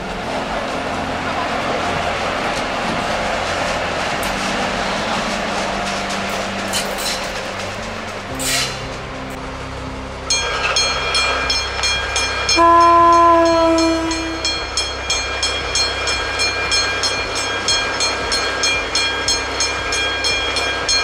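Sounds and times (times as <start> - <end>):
low rumble: 0.0 - 21.0
locomotive horn blast: 3.8 - 14.9.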